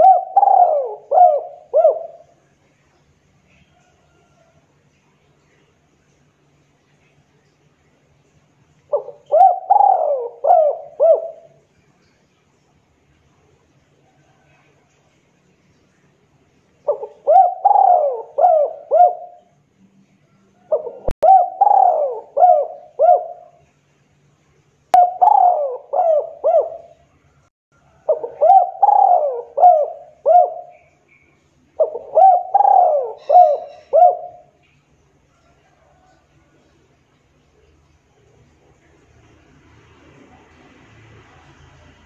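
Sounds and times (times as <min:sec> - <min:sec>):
dove cooing: 0:00.0 - 0:02.4, 0:08.9 - 0:11.6, 0:16.8 - 0:19.5, 0:20.6 - 0:23.6, 0:25.0 - 0:27.0, 0:27.9 - 0:31.0, 0:31.8 - 0:34.6.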